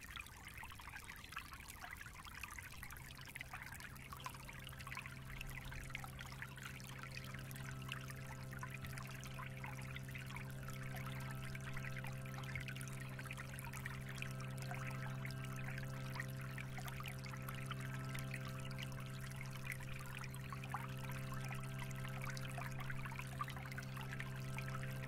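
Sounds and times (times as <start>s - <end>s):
stream trickling over gravel: 0.0s - 25.0s
low drone of held tones: 3.8s - 25.0s.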